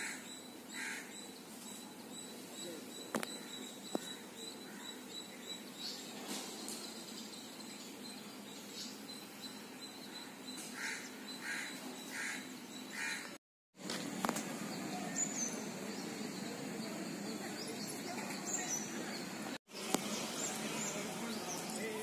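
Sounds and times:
bird calls: 0:00.0 - 0:13.4.

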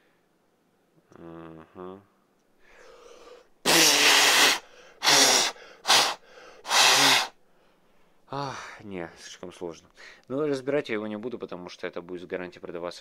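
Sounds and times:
person blowing out hard: 0:03.6 - 0:07.4.

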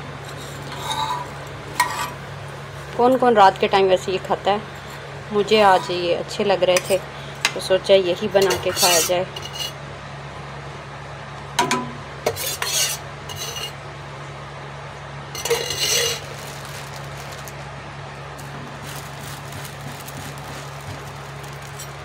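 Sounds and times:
steady low hum: 0:00.0 - 0:22.0
metal spoon scraping griddle: 0:00.2 - 0:02.2, 0:04.7 - 0:06.2, 0:08.3 - 0:09.8, 0:12.3 - 0:13.8, 0:15.4 - 0:16.4.

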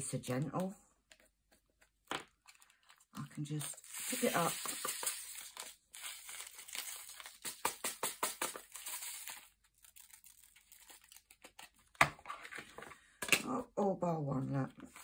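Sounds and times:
plastic crinkling: 0:01.7 - 0:12.0
small beads rattling in plastic tray: 0:03.5 - 0:10.1.

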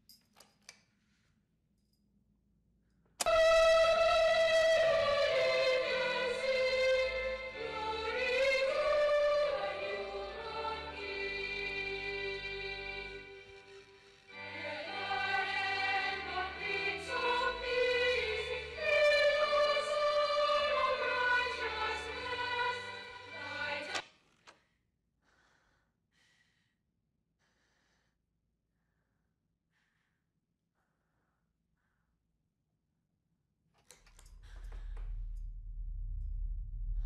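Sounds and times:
choir singing over low notes: 0:03.2 - 0:24.0.

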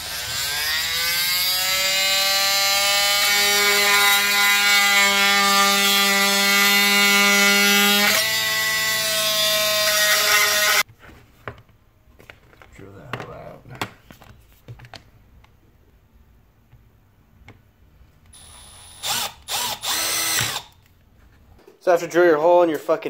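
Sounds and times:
oscillating multi-tool buzzing: 0:00.0 - 0:10.8, 0:18.4 - 0:20.8.

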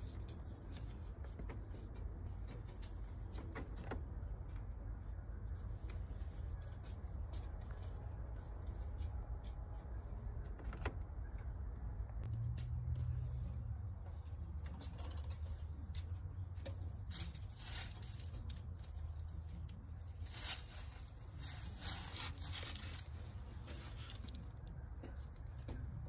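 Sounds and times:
rabbit grooming rustling: 0:13.0 - 0:25.4.

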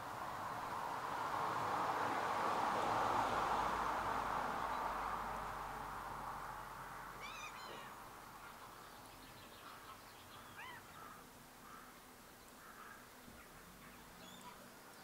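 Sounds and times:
birds calling: 0:07.2 - 0:15.0.

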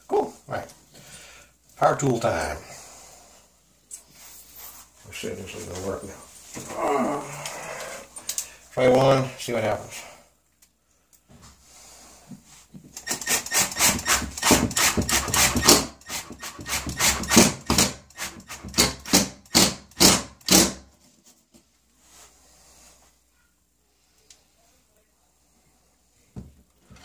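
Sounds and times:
impact driver driving a screw: 0:13.0 - 0:20.8.

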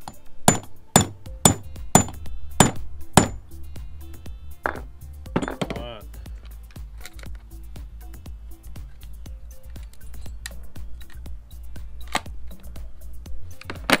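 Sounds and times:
hammer striking metal punch: 0:00.0 - 0:03.4.

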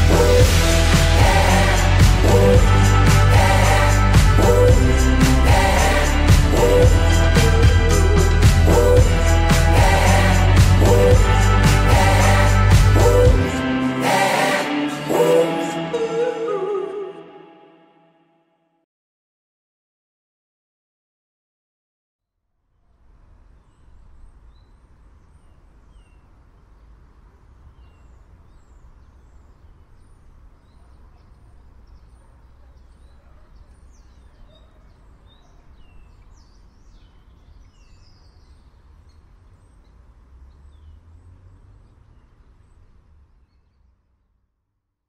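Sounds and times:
steady low rumble: 0:00.0 - 0:14.3
small birds chirping: 0:23.5 - 0:44.0.

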